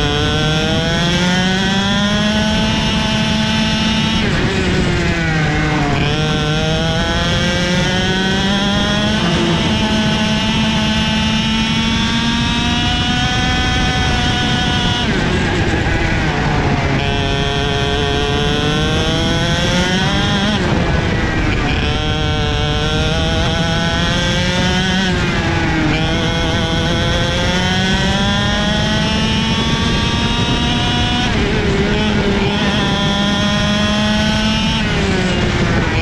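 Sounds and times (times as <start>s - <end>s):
kart engine revving: 0.0s - 36.0s
wind rush and road noise: 0.0s - 36.0s.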